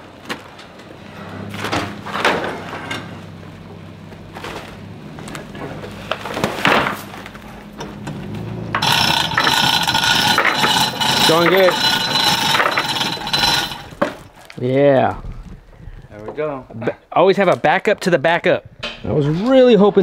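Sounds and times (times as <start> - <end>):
vehicle engine running low: 1.0 - 11.2
chain hoist rattling and clicking: 8.8 - 14.4.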